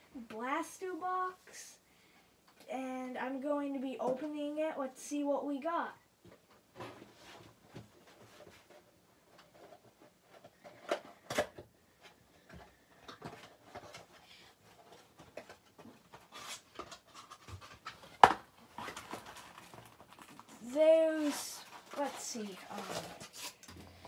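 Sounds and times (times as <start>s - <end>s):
cardboard rustling and scraping: 6.7s - 24.0s.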